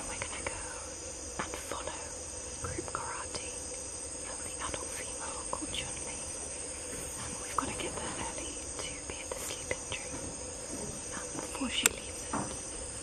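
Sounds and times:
insects trilling: 0:00.0 - 0:13.0
low steady drone: 0:00.0 - 0:13.0.

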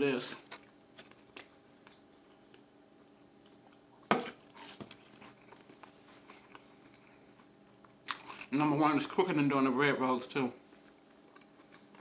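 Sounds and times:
crunchy chewing: 0:00.4 - 0:08.6.

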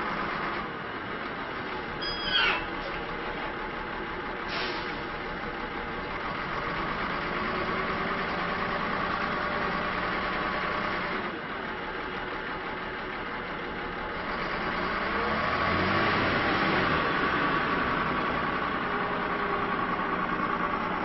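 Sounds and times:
diesel truck engine running: 0:00.0 - 0:21.0.

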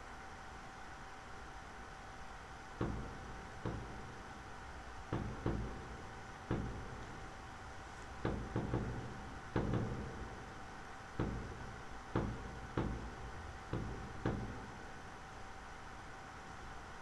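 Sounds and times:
faint steady hum: 0:00.0 - 0:17.0
light knocks: 0:02.8 - 0:04.2, 0:05.1 - 0:07.3, 0:08.1 - 0:10.4, 0:11.2 - 0:14.7.

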